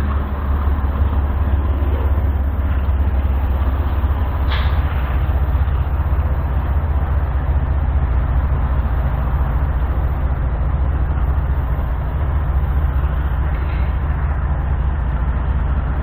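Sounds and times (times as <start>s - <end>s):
diesel locomotive engine throbbing: 0.0s - 16.0s.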